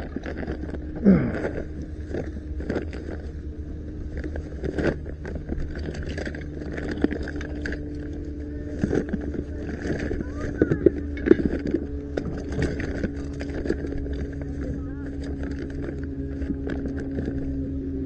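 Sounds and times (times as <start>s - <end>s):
steady low hum: 0.0s - 18.0s
plastic toys clattering: 8.8s - 14.4s.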